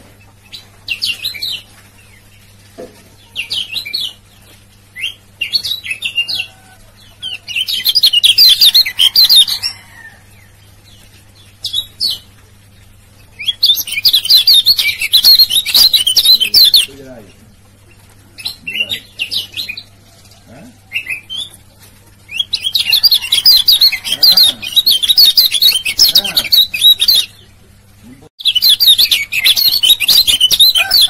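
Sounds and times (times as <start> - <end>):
bird chirping rapidly: 7.2 - 9.7, 13.3 - 17.4, 22.3 - 27.5, 28.4 - 31.0.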